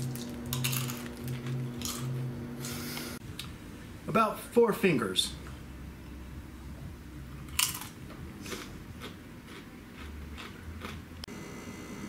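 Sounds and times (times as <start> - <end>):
tortilla chip crunching: 0.0 - 2.1, 7.5 - 11.0.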